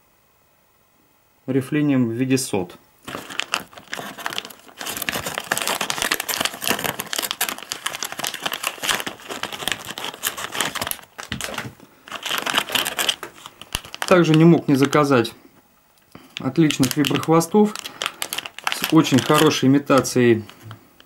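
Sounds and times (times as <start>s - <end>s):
plastic packaging crinkling: 3.0s - 15.4s, 16.0s - 21.0s.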